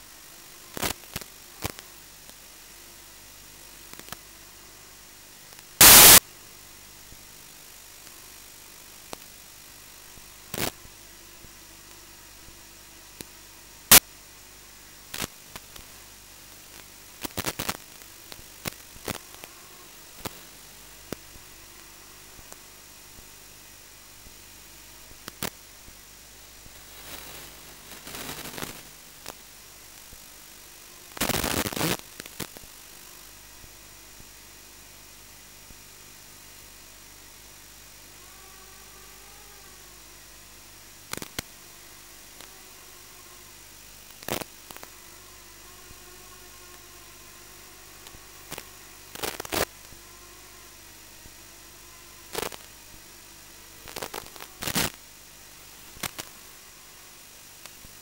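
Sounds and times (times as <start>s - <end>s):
static hiss: 0.0s - 58.0s
sharp crackling pops: 0.7s - 2.4s, 5.5s - 6.3s, 8.0s - 12.0s, 13.2s - 14.1s, 15.1s - 23.3s, 25.0s - 33.1s, 41.0s - 41.6s, 43.8s - 45.0s, 48.0s - 50.0s, 52.2s - 53.0s, 53.8s - 55.1s, 55.7s - 56.4s.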